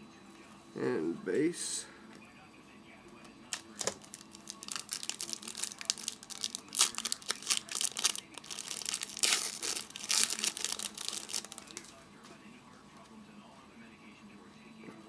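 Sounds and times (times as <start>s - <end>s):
wrapper tearing and crinkling: 3.5s - 11.8s.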